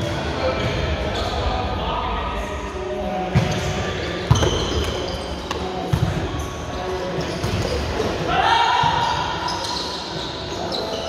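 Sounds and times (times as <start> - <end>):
players' voices echoing: 0.0 - 11.0
shoes squeaking on court floor: 3.4 - 11.0.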